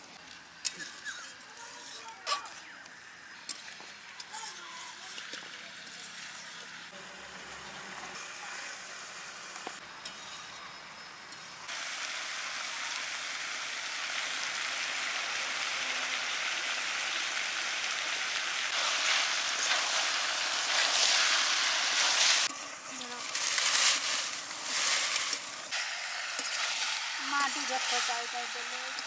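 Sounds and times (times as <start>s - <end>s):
chicken frying sizzle: 0.0s - 10.0s, 11.2s - 29.0s.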